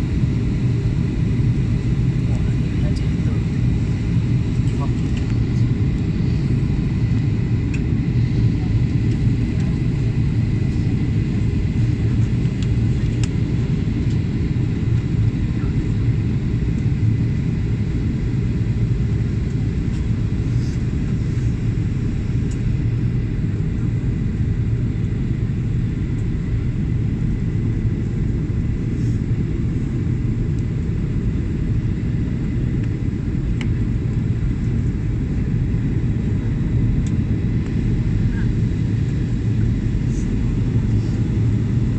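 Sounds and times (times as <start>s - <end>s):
jet airliner cabin rumble: 0.0s - 41.9s.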